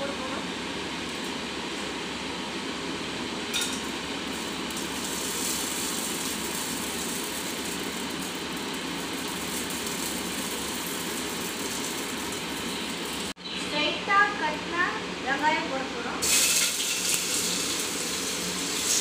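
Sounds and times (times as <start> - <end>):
spices sizzling in hot fat: 3.5 - 13.4, 16.2 - 19.0.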